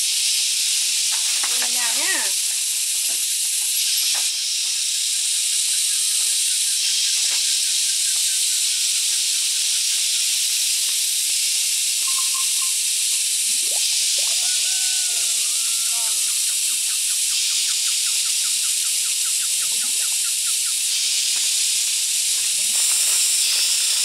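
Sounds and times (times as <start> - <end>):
high-pitched hiss: 0.0 - 24.0
faint chirps and whistles: 12.0 - 12.8, 13.7 - 20.8.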